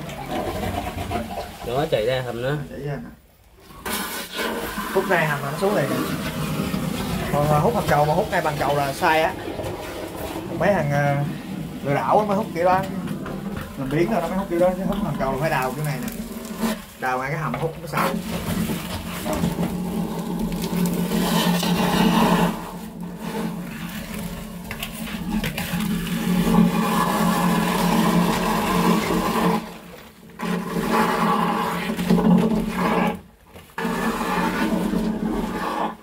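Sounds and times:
vacuum hose suction rush: 3.6 - 33.2, 33.8 - 36.0.

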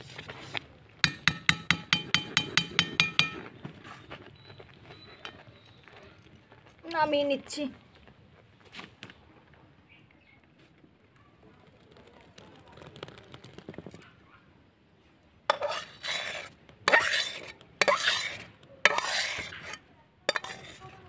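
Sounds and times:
metal spatula scraping a wok: 15.5 - 21.0.

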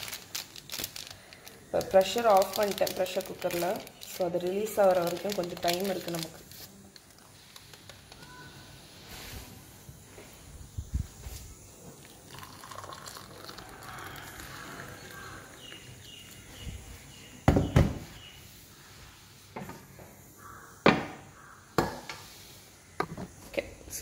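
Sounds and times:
water pouring into a mug: 12.0 - 16.0.

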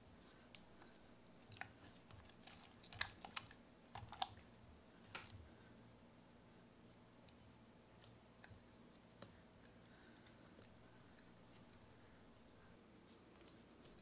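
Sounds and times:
slime squishing by hand: 0.2 - 5.5.

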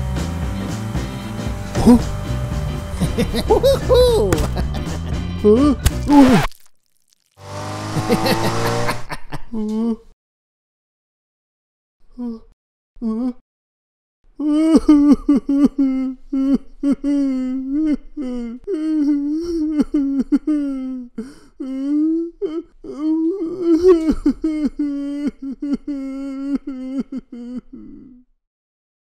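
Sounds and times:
cartoon voice chattering and humming: 1.7 - 2.2, 3.0 - 4.6.

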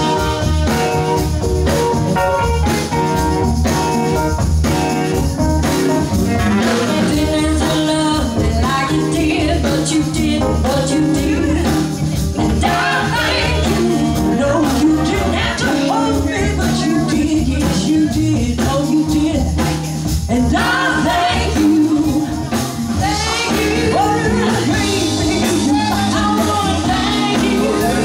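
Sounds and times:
women singing: 0.0 - 1.4, 6.7 - 19.6, 20.3 - 28.0
soul band playing: 0.0 - 28.0.

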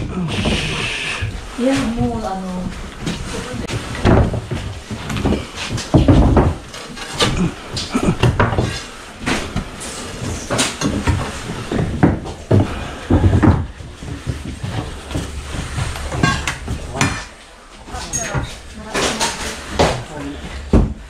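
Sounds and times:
crowbar prying wooden floorboards: 3.0 - 17.4.

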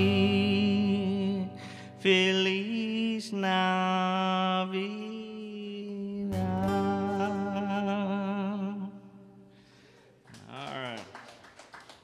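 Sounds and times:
man singing long notes: 0.0 - 9.5
strummed acoustic guitar: 0.0 - 9.9.

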